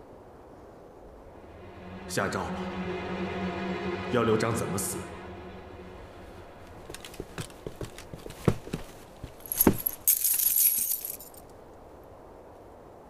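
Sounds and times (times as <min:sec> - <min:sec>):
metal clinking and jangling: 0:09.4 - 0:11.5.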